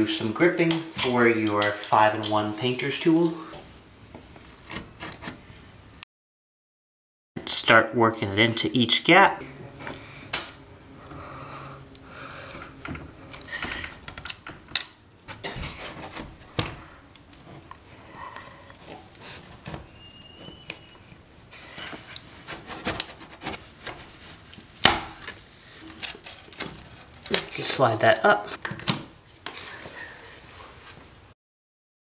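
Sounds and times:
metal tool scraping wood: 21.6 - 24.4
wood cracking: 22.1 - 29.5.

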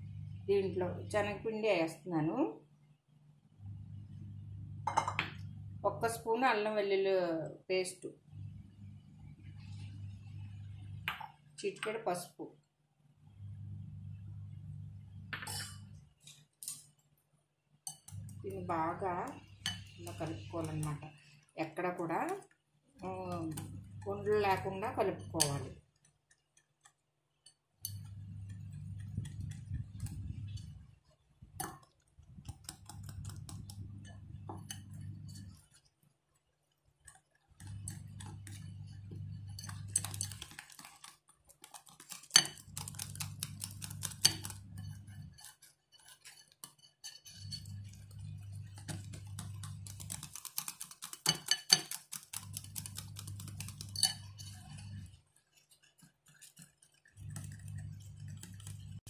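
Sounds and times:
low steady hum: 0.0 - 2.4, 3.6 - 7.3, 8.2 - 12.0, 13.2 - 16.2, 18.0 - 22.4, 23.0 - 25.9, 27.8 - 35.8, 37.0 - 45.6, 47.1 - 50.4, 52.3 - 55.2, 57.1 - 59.0
whisk clinking against glass bowl: 19.5 - 21.0, 32.5 - 35.6, 37.6 - 59.0.

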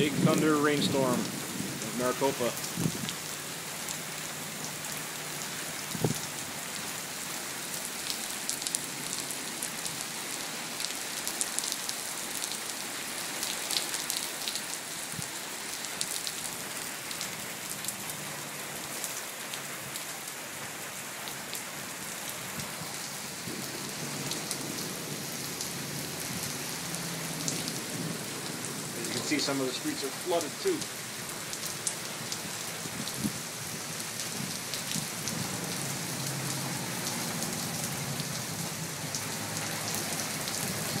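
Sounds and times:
heavy rain on pavement: 0.0 - 41.0
raindrops ticking: 7.7 - 10.1, 10.8 - 18.2, 22.2 - 41.0.

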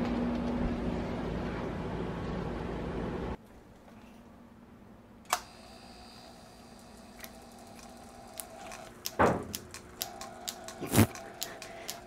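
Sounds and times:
electric motor hum and whine: 5.4 - 12.0
irregular clicking: 7.1 - 12.0.

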